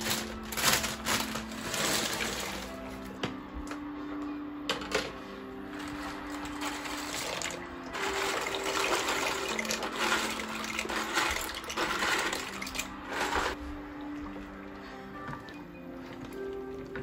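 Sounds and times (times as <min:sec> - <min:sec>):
dry pasta pouring into a pot: 0:00.0 - 0:02.9, 0:05.8 - 0:13.6.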